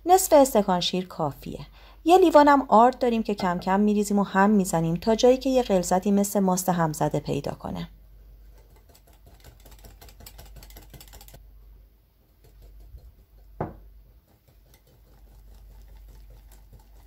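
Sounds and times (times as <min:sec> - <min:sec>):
whisk clicking against glass bowl: 0:08.5 - 0:11.4, 0:14.2 - 0:17.0
dull knock: 0:13.6 - 0:13.9.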